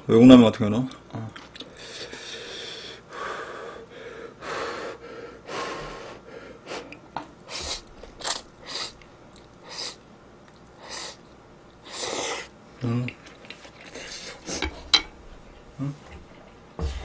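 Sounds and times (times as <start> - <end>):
sharp breaths: 1.8 - 6.9
slurping noodles: 7.5 - 11.2, 11.8 - 14.8.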